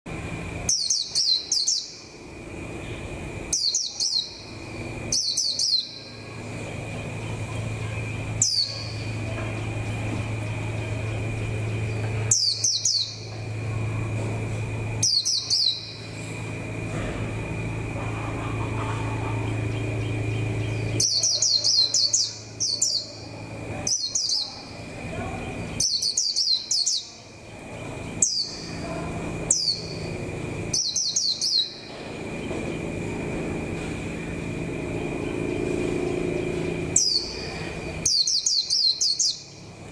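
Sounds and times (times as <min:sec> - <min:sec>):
steady low hum: 0:00.1 - 0:39.9
bird chirping: 0:00.6 - 0:02.1, 0:02.8 - 0:09.6, 0:10.5 - 0:13.4, 0:15.0 - 0:16.2, 0:18.2 - 0:32.8, 0:36.4 - 0:39.7.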